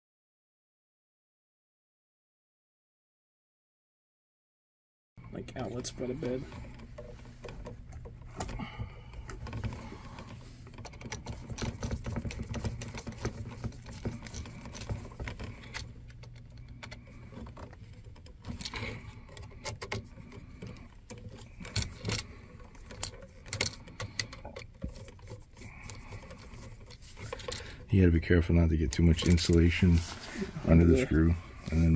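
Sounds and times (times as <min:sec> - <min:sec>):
clicks and rattles of wires: 0:05.5 - 0:30.6.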